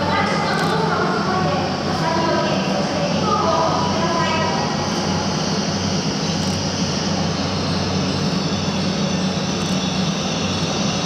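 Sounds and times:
train hum and rumble: 0:00.0 - 0:11.0.

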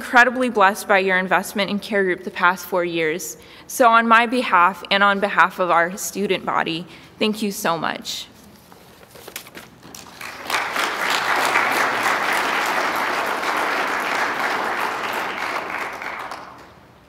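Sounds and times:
congregation applauding: 0:09.9 - 0:17.0.

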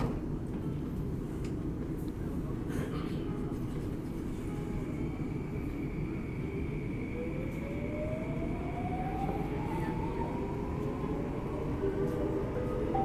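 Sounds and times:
train rumble: 0:00.0 - 0:13.0
steady high tone: 0:04.5 - 0:13.0.

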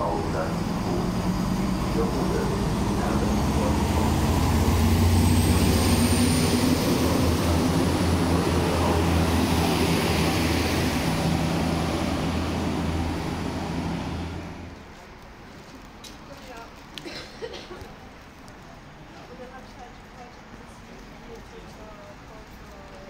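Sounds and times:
diesel railcar engine droning: 0:00.0 - 0:15.6.

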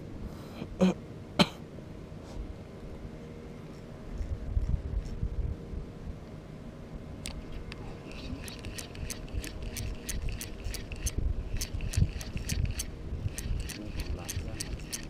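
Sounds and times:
fishing reel ticking: 0:08.1 - 0:15.0.

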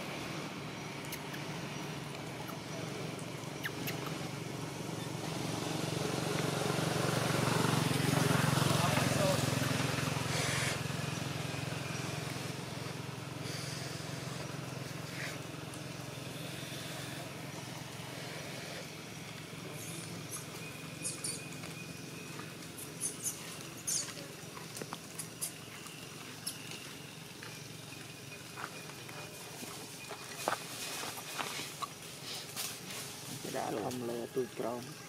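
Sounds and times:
steady low hum: 0:00.0 - 0:35.0
crackles and rustles: 0:21.4 - 0:34.1.

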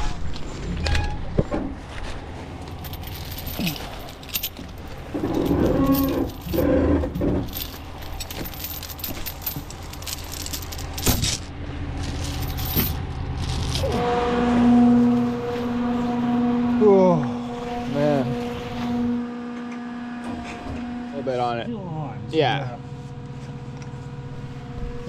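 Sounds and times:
droning whine: 0:00.0 - 0:25.0
metallic clinks and rattles: 0:02.6 - 0:13.9
truck engine running: 0:06.3 - 0:18.7, 0:21.5 - 0:25.0.

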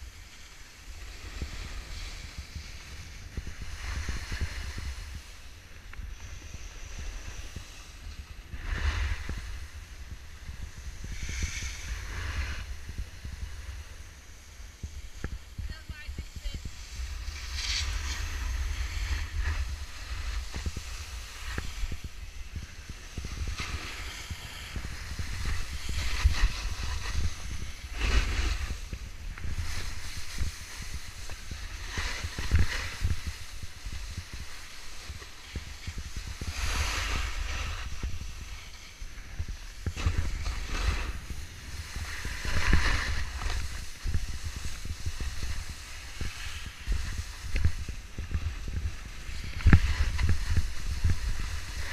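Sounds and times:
skis scraping on packed snow: 0:00.0 - 0:51.9
wind noise on microphone: 0:00.0 - 0:51.9.

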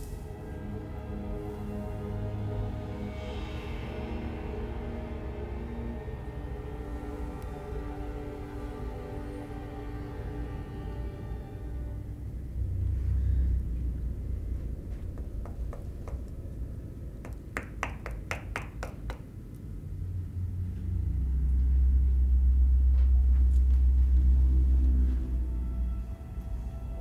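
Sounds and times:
deep horror drone: 0:00.0 - 0:27.0
knuckles knocking on hard surface: 0:15.2 - 0:16.3.

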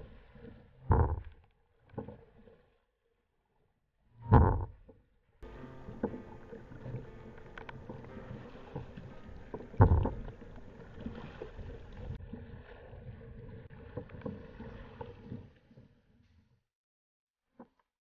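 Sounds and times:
water splashing against plastic hull: 0:05.4 - 0:15.6.

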